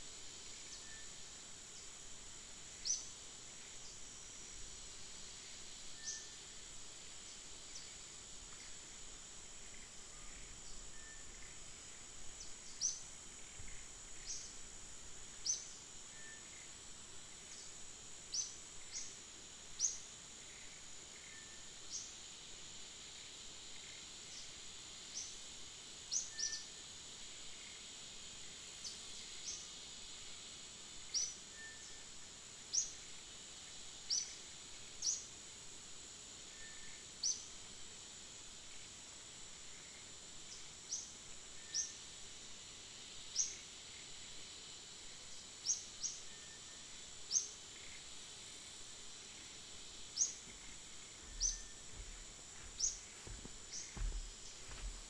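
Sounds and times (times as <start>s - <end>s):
insect drone: 0.0s - 55.0s
bird chirps: 50.2s - 51.9s.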